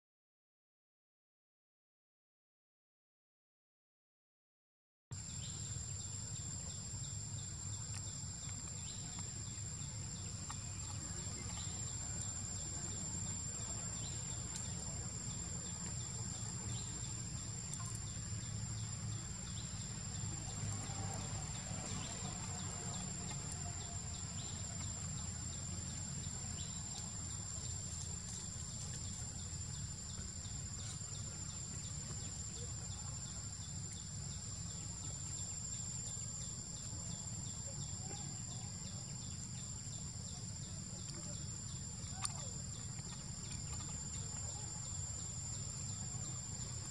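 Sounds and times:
insect chirping: 5.2 - 46.9.

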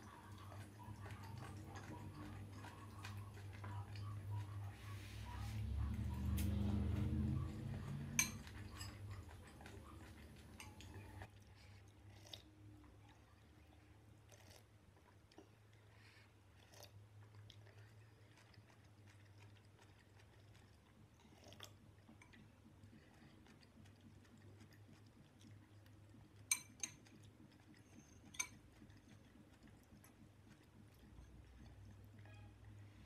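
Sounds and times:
chewing noodles: 0.0 - 33.0
metal utensils clicking on glass bowl: 8.1 - 9.6
noodles being slurped: 14.0 - 32.3.

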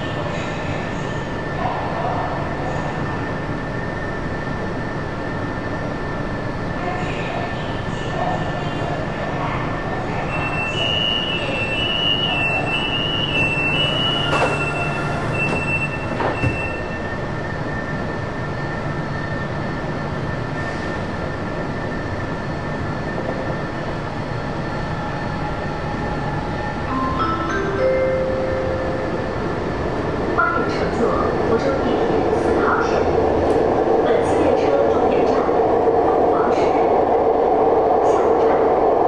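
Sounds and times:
train pulling away: 11.4 - 17.3
two-tone door warning: 12.1 - 17.0
train doors clunking shut: 13.8 - 17.0.

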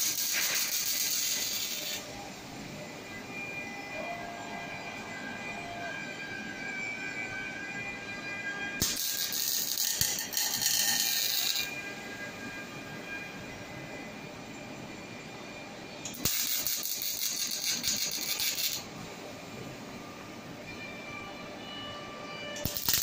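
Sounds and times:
welding arc striking crack: 0.0 - 2.0, 8.8 - 11.7, 16.1 - 18.8, 22.6 - 23.0
welding arc sizzling: 0.0 - 2.7, 8.8 - 12.6, 16.1 - 19.3, 22.6 - 23.0.

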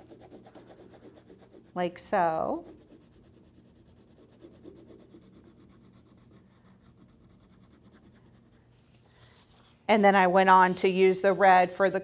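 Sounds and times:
crayon scratching on paper: 0.0 - 8.8.

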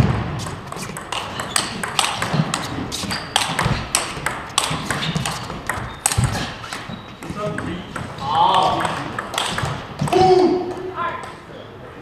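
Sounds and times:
ping pong ball clicking: 0.9 - 6.2, 8.8 - 10.2.

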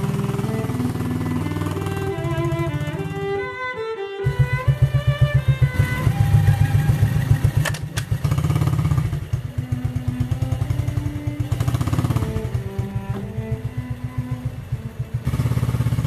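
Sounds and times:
quad bike engine running: 0.0 - 3.6, 4.2 - 16.0
clatter of clicks: 7.4 - 8.7.

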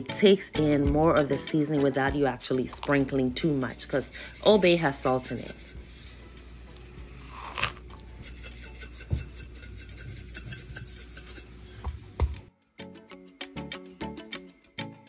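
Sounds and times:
background music: 0.0 - 15.0
hands rubbing seasoning on fish: 3.4 - 12.1.

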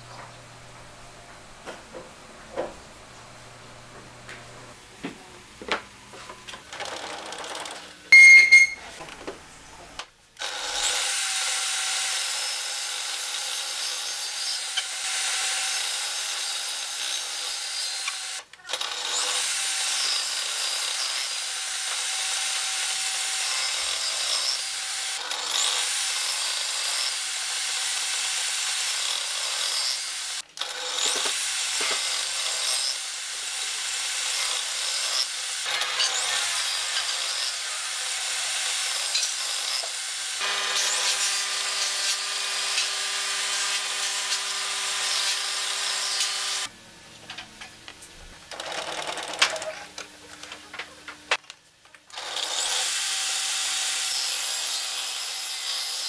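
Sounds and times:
table saw cutting wood: 10.4 - 46.7, 52.1 - 56.0.

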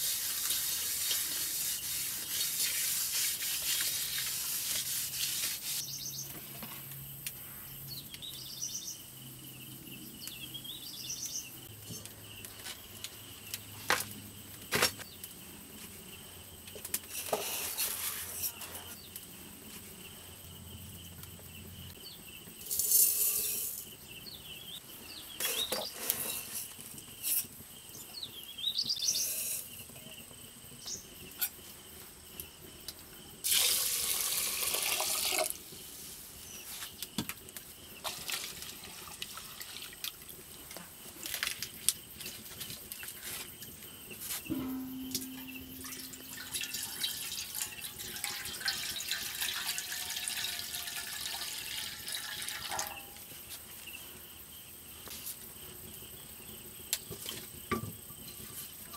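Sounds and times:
water pouring onto rice: 33.5 - 35.6, 38.0 - 40.2, 45.8 - 53.0
knocks and clinks of vessels: 44.5 - 51.4.

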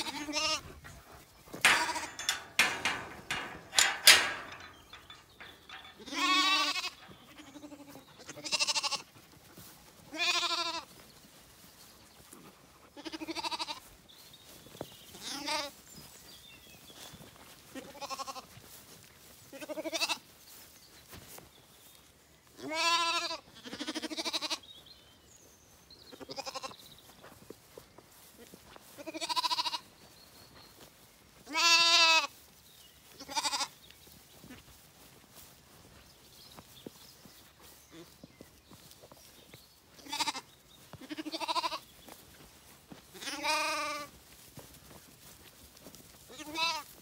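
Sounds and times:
lambs bleating: 0.0 - 0.8, 1.6 - 4.8, 5.8 - 9.1, 10.1 - 10.8, 13.0 - 13.8, 15.2 - 15.7, 19.5 - 20.2, 22.6 - 24.6, 29.0 - 29.9, 31.5 - 32.3, 33.2 - 33.7, 40.0 - 41.8, 43.2 - 44.1, 46.3 - 46.9
loud rustling and knocks: 1.6 - 7.1.

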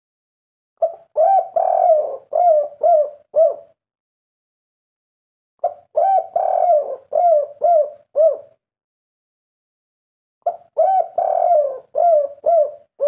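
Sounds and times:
dove cooing: 0.8 - 3.8, 5.6 - 8.6, 10.4 - 13.0.

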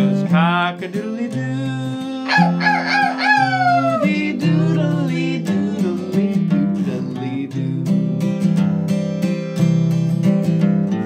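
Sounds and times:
acoustic guitar strumming: 0.0 - 11.0
rooster crowing: 2.2 - 5.0.

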